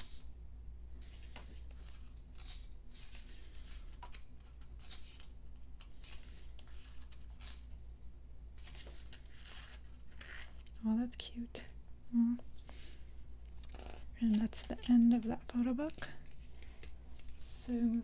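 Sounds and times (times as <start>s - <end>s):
faint low hum: 0.0s - 18.0s
pages turning: 0.9s - 7.8s, 8.5s - 10.8s, 13.5s - 18.0s.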